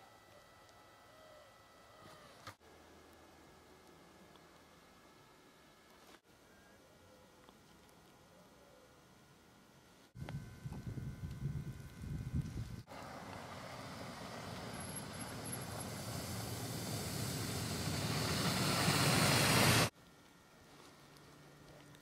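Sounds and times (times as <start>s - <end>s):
vehicle driving on slushy snow: 12.9s - 19.9s.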